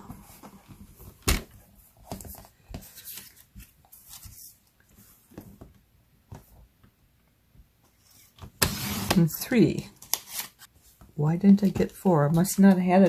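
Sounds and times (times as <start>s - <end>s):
paper rustling: 9.9s - 11.0s.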